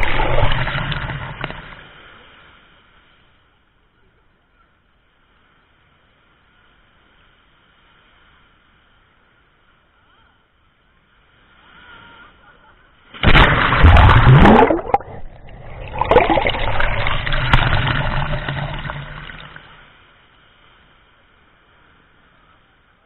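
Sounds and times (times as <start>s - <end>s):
wave washing over camera: 0.0s - 3.2s, 13.1s - 20.0s.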